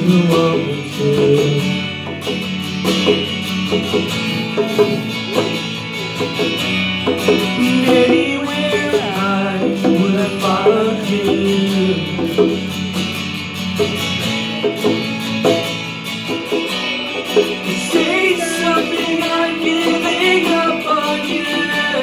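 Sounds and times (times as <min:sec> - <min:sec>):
man singing: 0:00.0 - 0:02.2, 0:07.3 - 0:12.8, 0:17.5 - 0:22.0
acoustic guitar: 0:00.0 - 0:22.0
conga drums: 0:00.0 - 0:22.0.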